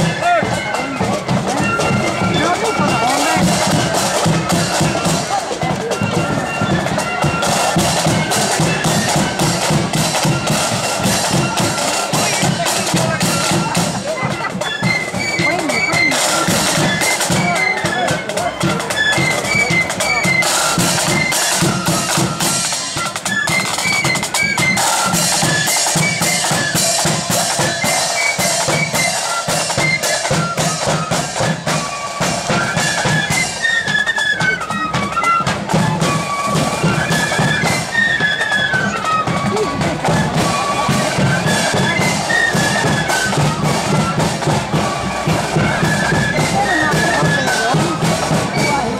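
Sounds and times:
flute melody: 0.0s - 48.9s
rapid snare drumming: 0.0s - 48.9s.

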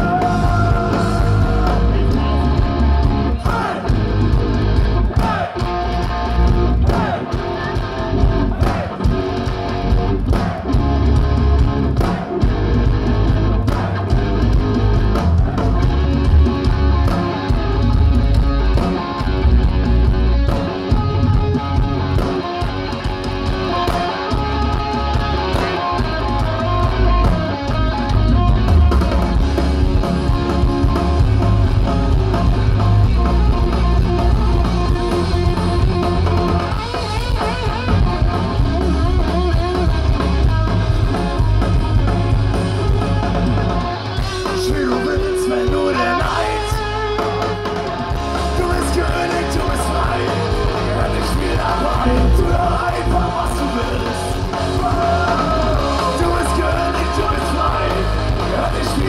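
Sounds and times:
sung lead vocal: 0.0s - 4.2s, 5.1s - 5.8s, 6.5s - 9.3s, 44.2s - 59.0s
distorted guitars: 0.0s - 59.0s
drums: 0.0s - 59.0s
rock band playing live: 0.0s - 59.0s.

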